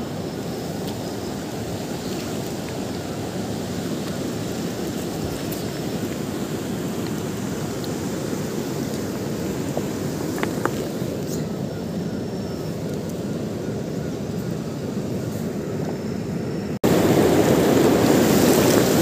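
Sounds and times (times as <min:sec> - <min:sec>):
river rushing over boulders: 0:00.0 - 0:11.3, 0:16.8 - 0:19.0.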